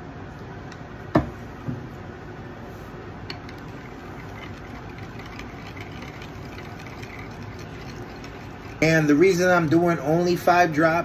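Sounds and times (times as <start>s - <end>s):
electric fan humming: 0.0s - 11.0s
bottle knocking on workbench: 1.1s - 1.8s.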